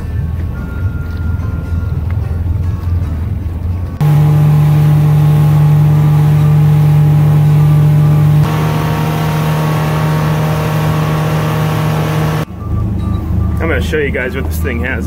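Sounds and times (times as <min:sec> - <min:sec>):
boat engine running at high speed: 0:02.8 - 0:12.5.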